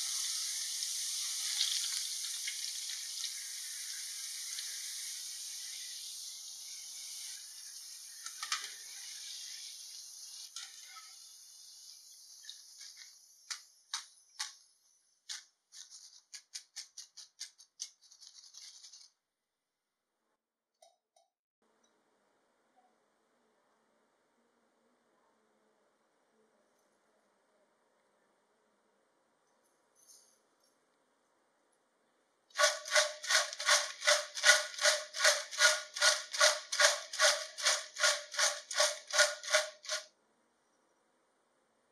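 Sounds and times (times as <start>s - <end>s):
hot oil sizzling: 0.0s - 14.1s, 32.6s - 40.0s
chips rattling in wire strainer: 15.8s - 19.1s, 32.6s - 40.0s.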